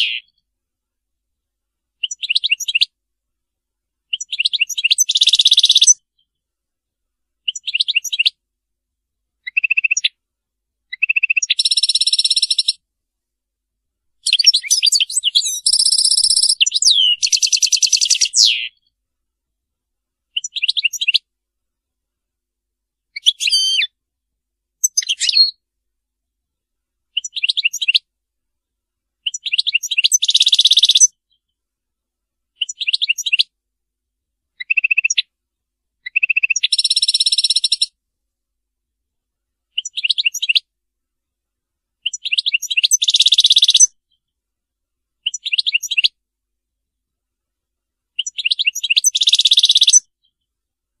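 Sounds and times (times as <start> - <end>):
goldfinch twittering song: 2.0 - 2.9, 4.1 - 6.3, 14.2 - 18.8, 23.2 - 23.9, 24.8 - 25.6, 29.3 - 31.2, 42.0 - 43.9, 48.2 - 50.1.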